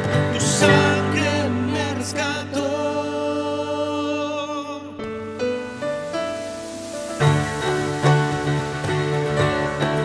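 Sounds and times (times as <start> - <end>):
keyboard accompaniment: 4.8 - 10.0.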